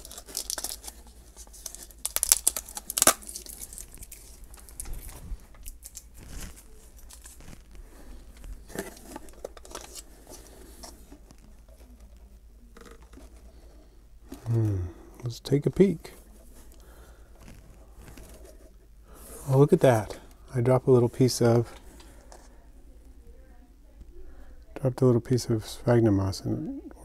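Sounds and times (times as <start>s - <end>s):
plastic cup crackling: 0.0s - 13.7s.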